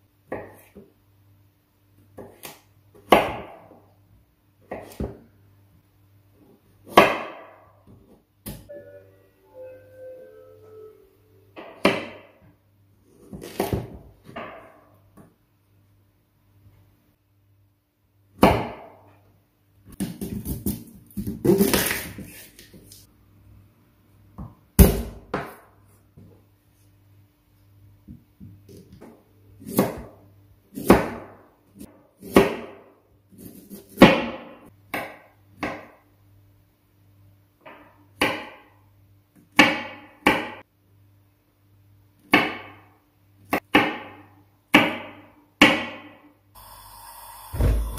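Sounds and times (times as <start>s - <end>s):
knife chopping on wooden board: 4.7s - 5.2s.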